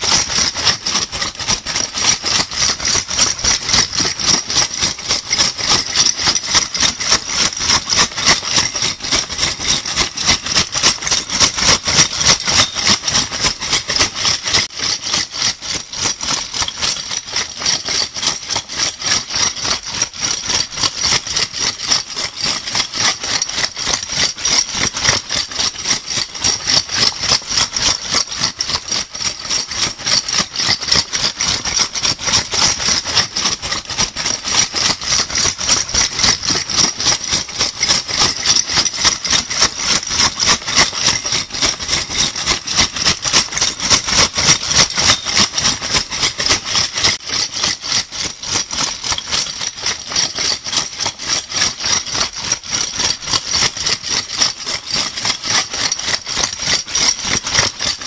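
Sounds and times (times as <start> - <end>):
bottle caps rattling: 11.9 - 14.3, 35.8 - 47.9.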